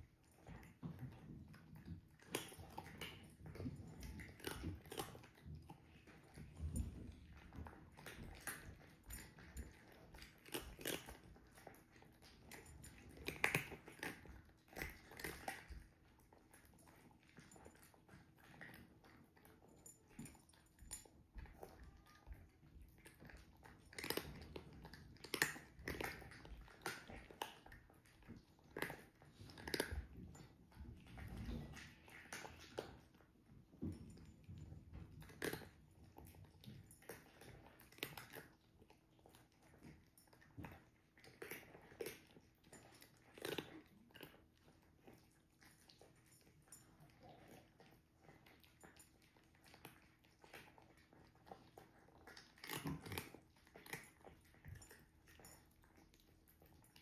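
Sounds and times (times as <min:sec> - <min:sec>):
cats chewing and crunching food: 0:00.0 - 0:57.0.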